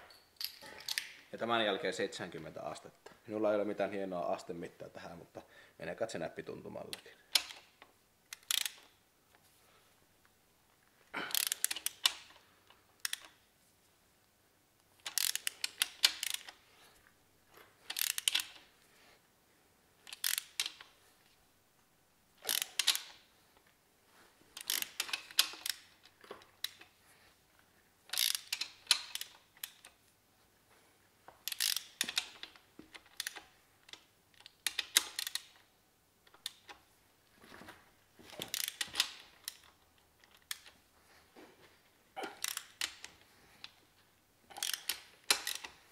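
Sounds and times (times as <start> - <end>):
ratchet wrench clicking: 8.3 - 8.8, 11.3 - 12.3, 13.0 - 13.3, 15.0 - 16.6, 17.9 - 18.6, 20.1 - 20.9, 22.4 - 23.2, 24.6 - 25.8, 28.1 - 29.9, 31.4 - 33.4, 34.6 - 35.6, 38.5 - 39.7, 42.4 - 43.1, 44.6 - 45.7.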